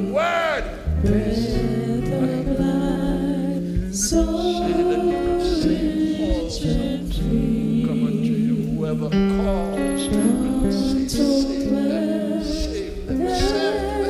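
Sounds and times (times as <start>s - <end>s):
woman singing: 0.9s - 8.8s, 10.0s - 14.0s
keyboard and band playing: 7.2s - 13.8s.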